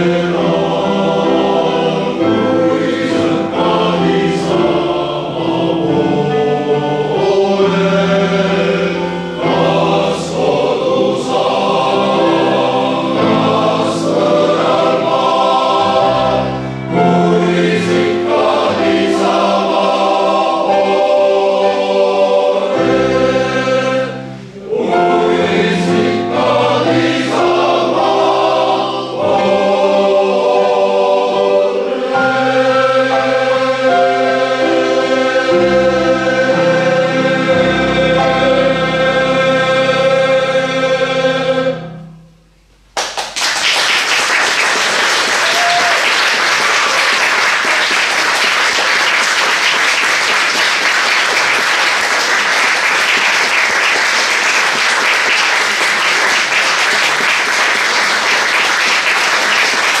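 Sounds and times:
men's choir singing: 0.0s - 41.9s
audience applause: 43.0s - 60.0s.

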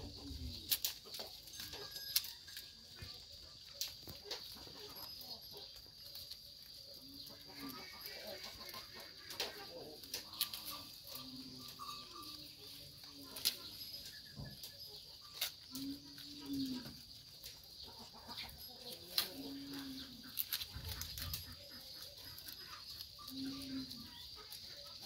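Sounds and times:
goats chewing: 0.0s - 25.0s
leafy branches rustling and snapping: 0.6s - 1.1s, 19.1s - 21.5s.

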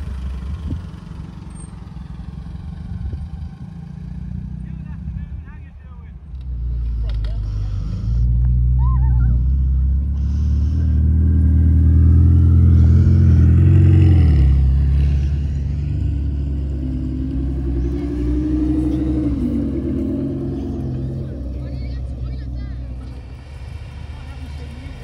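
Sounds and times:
sports car engine pulling away: 6.2s - 25.0s
sports car engine revving: 6.2s - 25.0s.

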